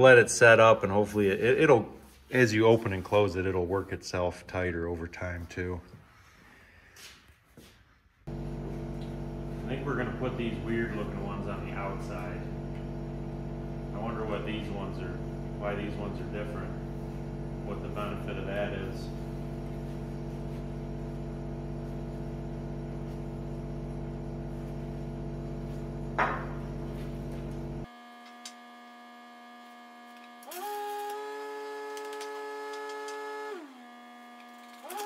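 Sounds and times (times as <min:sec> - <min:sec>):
electrical hum: 0:08.3 - 0:29.6
small motor whine: 0:08.3 - 0:35.0.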